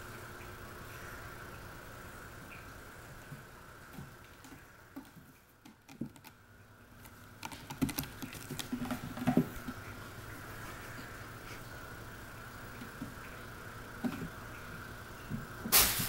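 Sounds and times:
cat claws scratching rope posts: 7.0 - 9.8.

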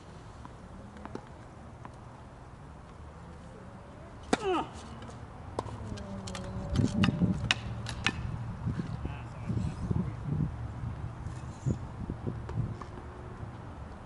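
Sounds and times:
tennis ball strikes and bounces: 4.2 - 9.0.

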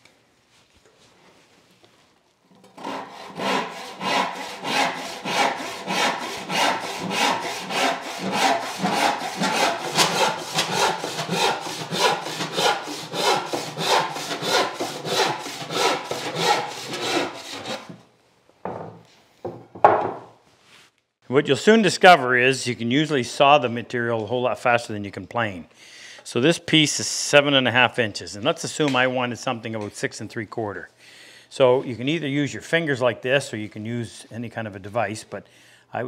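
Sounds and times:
hand saw cutting wood: 2.6 - 18.0.

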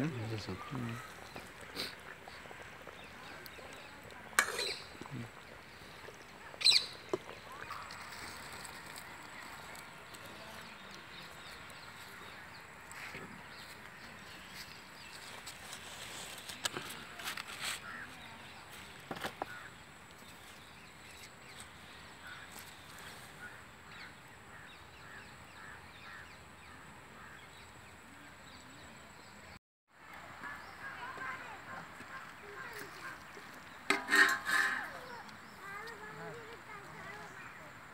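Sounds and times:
birds calling: 0.0 - 15.4.

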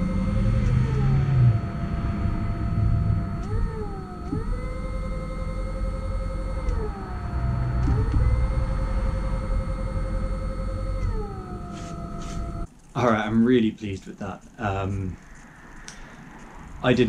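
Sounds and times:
electric motor whine: 0.0 - 12.7
low rumble: 0.0 - 12.7
steady high tone: 0.0 - 13.2.

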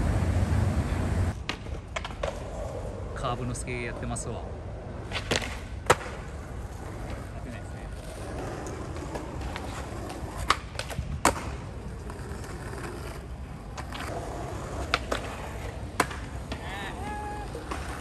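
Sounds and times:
skateboard clacks: 0.0 - 2.9, 5.0 - 18.0
skateboard wheels rolling on concrete: 0.0 - 18.0.

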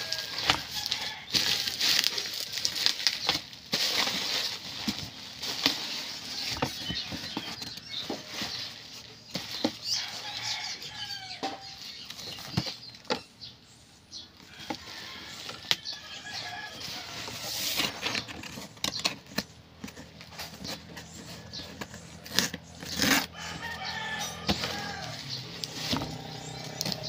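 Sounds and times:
packaging rustling and crinkling: 0.0 - 13.1, 24.4 - 27.0.

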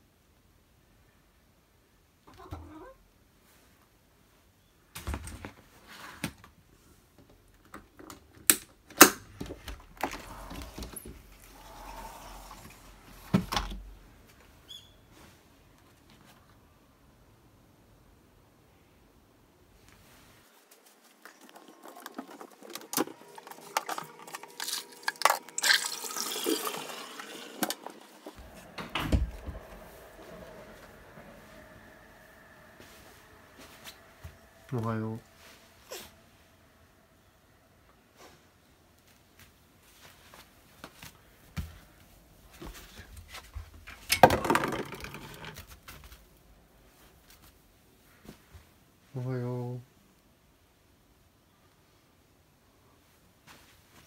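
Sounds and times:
rushing hiss: 10.3 - 13.3.

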